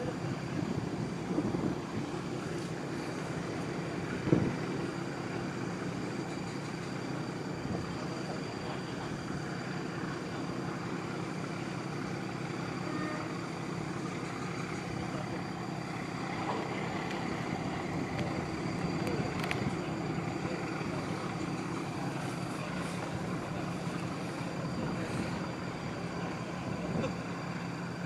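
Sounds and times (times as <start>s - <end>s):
distant heavy engines rumbling: 0.0s - 28.0s.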